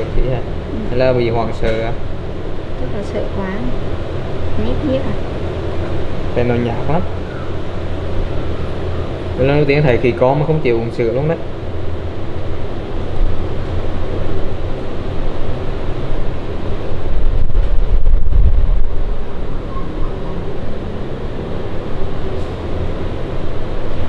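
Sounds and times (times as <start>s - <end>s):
wind rushing on microphone: 12.5s - 21.1s.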